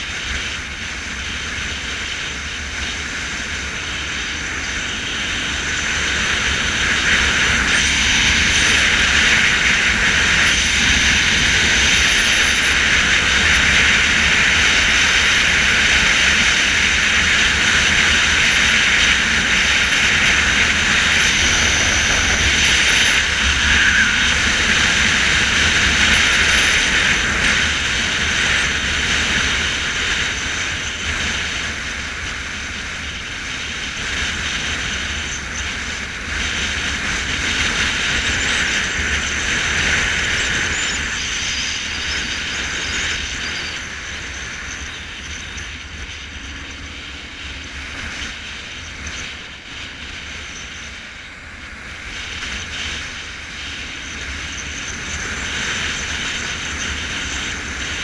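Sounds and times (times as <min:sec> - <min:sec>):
motorcycle engine: 0:00.1 - 0:58.0
wind rushing: 0:18.2 - 0:27.8.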